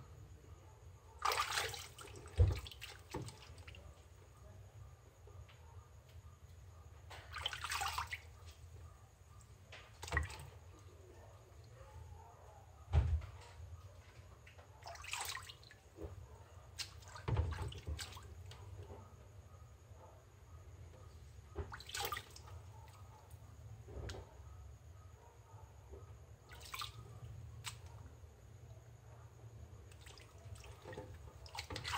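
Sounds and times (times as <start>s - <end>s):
water sloshing in plastic basin: 1.2s - 4.1s, 7.1s - 8.7s, 9.7s - 11.0s, 14.1s - 19.0s, 21.4s - 23.2s, 26.4s - 28.2s, 29.8s - 31.9s.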